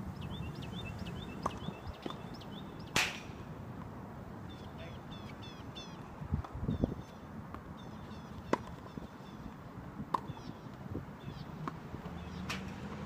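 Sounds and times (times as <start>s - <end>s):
birds chirping: 0.0s - 3.5s, 4.3s - 9.6s, 10.2s - 12.6s
tennis balls struck by rackets: 1.3s - 3.9s, 8.3s - 8.9s, 9.5s - 10.9s, 11.5s - 12.9s.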